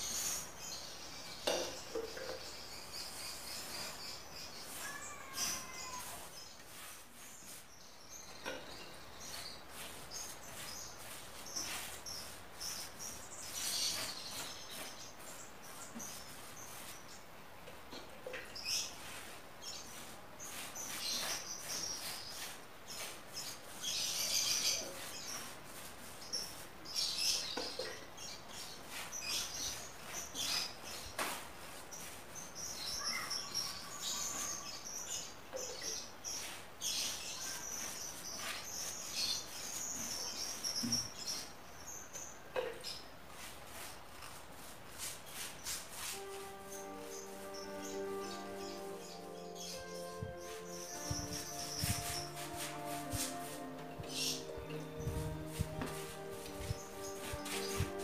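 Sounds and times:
birds chirping: 0:00.0 - 0:17.3, 0:45.3 - 0:58.0
paintbrush swishing on wood: 0:03.6 - 0:08.4, 0:09.1 - 0:17.2, 0:18.6 - 0:41.5, 0:43.3 - 0:58.0.

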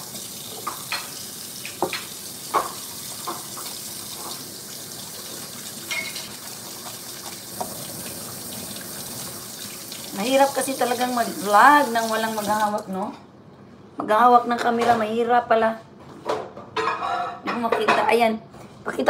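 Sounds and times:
kitchen tap running: 0:00.0 - 0:13.1.

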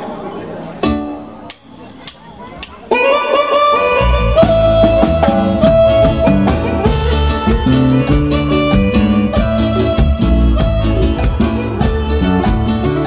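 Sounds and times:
electronic keyboard melody: 0:02.9 - 0:13.0
electric bass guitar: 0:03.0 - 0:13.0
drum kit: 0:04.2 - 0:13.0.

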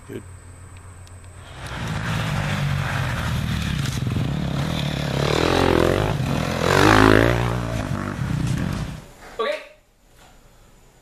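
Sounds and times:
dirt bike engines revving: 0:01.4 - 0:09.1.

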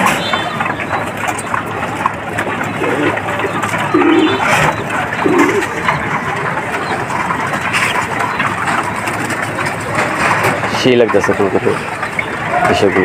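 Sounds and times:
pigeons cooing: 0:00.0 - 0:13.0
pigeons pecking grain: 0:00.0 - 0:13.0.

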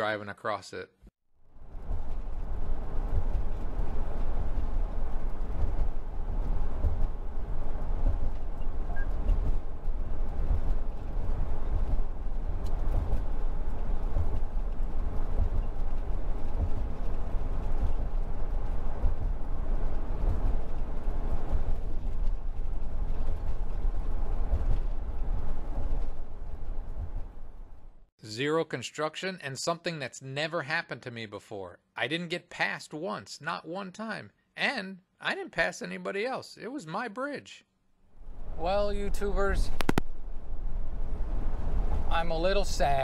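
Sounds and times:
tyre rumble: 0:01.6 - 0:27.8.

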